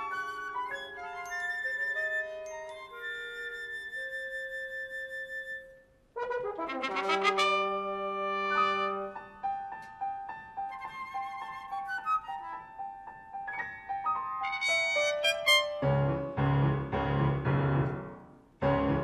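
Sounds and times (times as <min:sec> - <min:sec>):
piano: 0:00.0 - 0:19.0
brass: 0:06.2 - 0:09.3, 0:14.3 - 0:16.2
chamber ensemble playing: 0:14.0 - 0:16.1.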